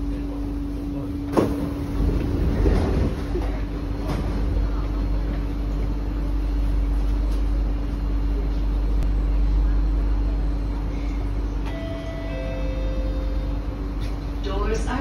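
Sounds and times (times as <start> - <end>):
train hum: 0.0 - 15.0
train door clack: 1.3 - 4.5.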